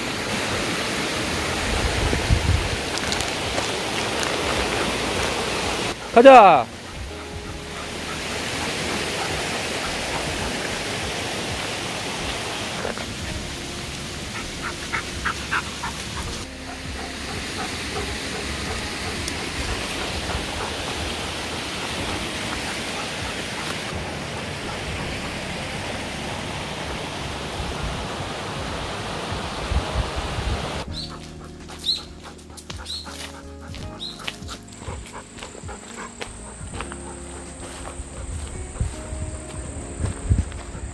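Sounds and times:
creek rushing: 0:00.0 - 0:40.9
steady low tones: 0:04.8 - 0:12.2, 0:12.9 - 0:29.5.

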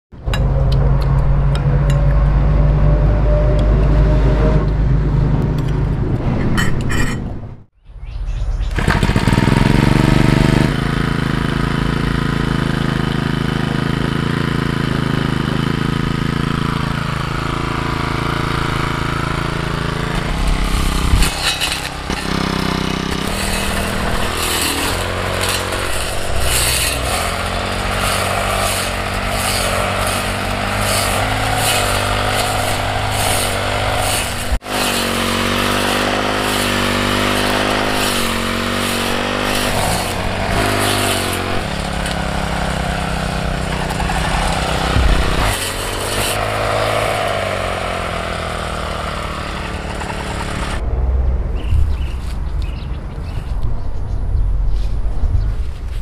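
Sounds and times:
brush cutter cutting grass: 0:08.7 - 0:50.8
brush cutter engine running: 0:08.7 - 0:50.8.

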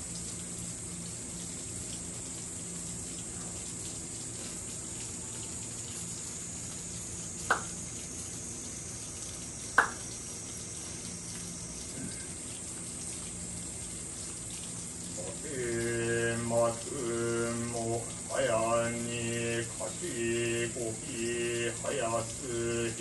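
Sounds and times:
rain falling: 0:00.0 - 0:23.0
short sharp taps: 0:09.8 - 0:10.0.

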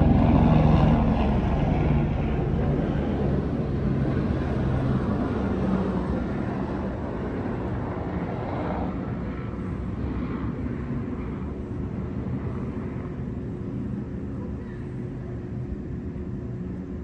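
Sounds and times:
outdoor background rumble: 0:00.0 - 0:17.0.

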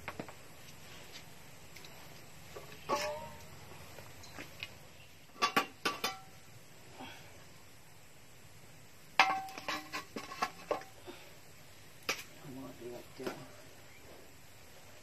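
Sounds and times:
metal basin and lid clanking: 0:02.8 - 0:03.4, 0:05.3 - 0:06.4, 0:09.2 - 0:10.9.

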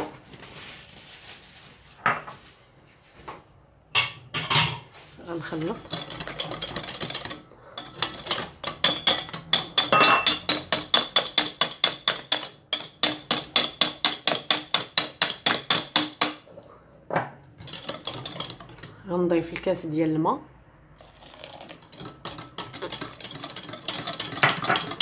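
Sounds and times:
whisk clicking against glass bowl: 0:05.8 - 0:16.3, 0:21.7 - 0:25.0.

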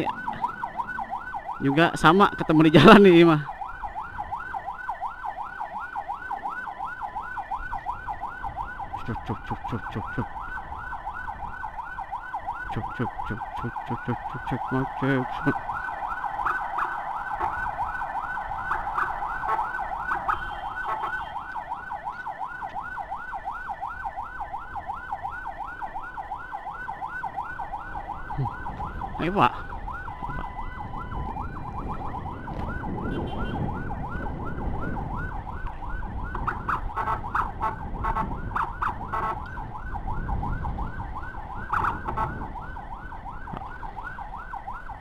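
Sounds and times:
electronic siren yelping: 0:00.0 - 0:45.0
low-pitched horn blasts: 0:18.7 - 0:21.4, 0:33.0 - 0:33.8.

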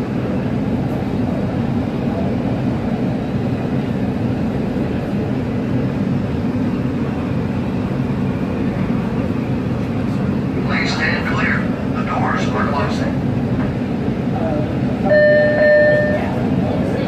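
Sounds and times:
subway train rumbling: 0:00.0 - 0:17.0.

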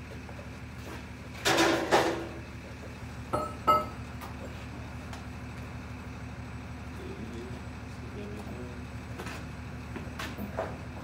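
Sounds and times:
hammer striking steel: 0:03.4 - 0:04.0.

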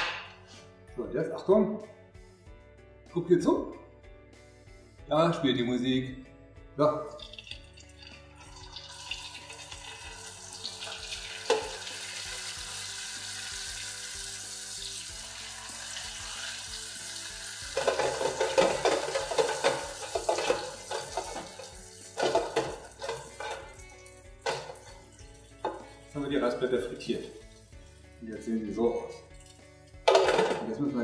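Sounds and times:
deep-frying sizzling hiss: 0:09.0 - 0:18.4.

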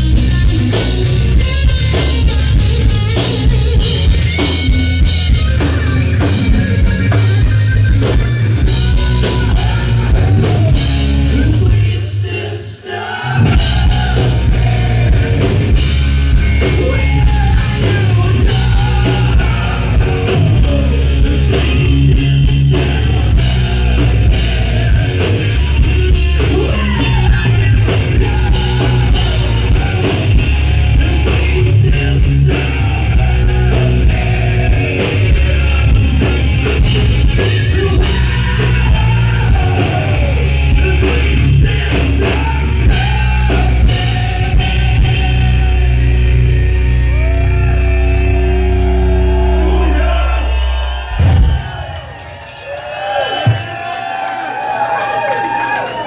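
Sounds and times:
rock band playing: 0:00.0 - 0:52.4
person singing: 0:08.8 - 0:46.4.

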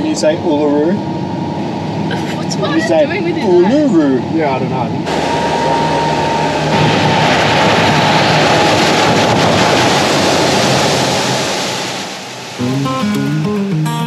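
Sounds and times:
truck engine running: 0:00.0 - 0:13.8
wind on microphone: 0:05.0 - 0:12.6
water spray from wheels: 0:05.1 - 0:13.1.

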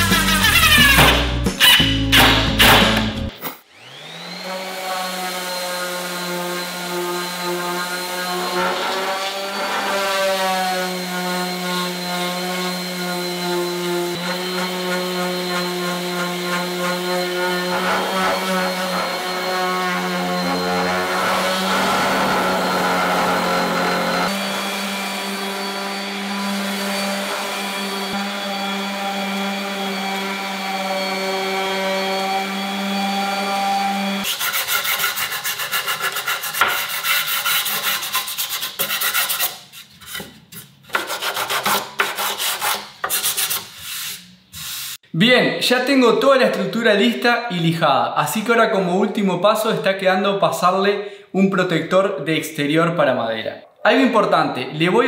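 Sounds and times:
orbital sander on wood: 0:03.7 - 0:39.1.

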